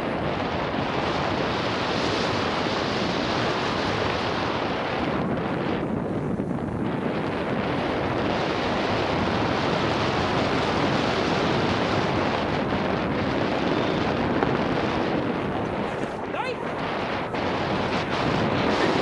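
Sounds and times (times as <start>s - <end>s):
tyre and trail rumble: 0.0s - 19.0s
wind rushing over microphone: 0.0s - 19.0s.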